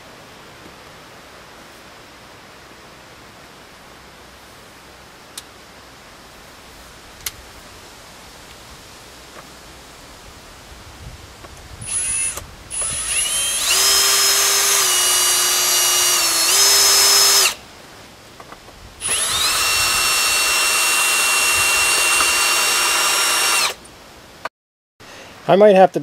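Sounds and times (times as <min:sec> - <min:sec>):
power drill whining: 0:11.8 - 0:17.6, 0:19.0 - 0:23.8.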